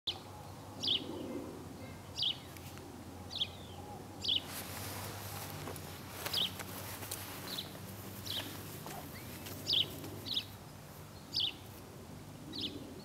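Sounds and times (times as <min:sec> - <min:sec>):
low steady hum: 0:00.1 - 0:13.0
songbird call notes: 0:03.3 - 0:04.5, 0:07.4 - 0:11.7.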